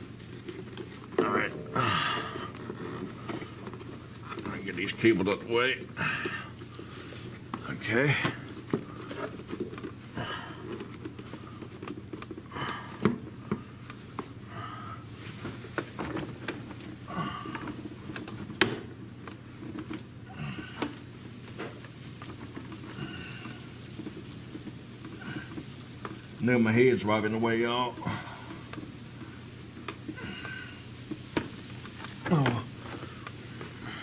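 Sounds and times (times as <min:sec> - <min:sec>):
steady low hum: 0:00.0 - 0:34.0
person breathing: 0:01.6 - 0:02.6, 0:14.4 - 0:15.3
plastic parts knocking and clicking: 0:08.2 - 0:14.4, 0:15.4 - 0:26.3, 0:28.5 - 0:33.8.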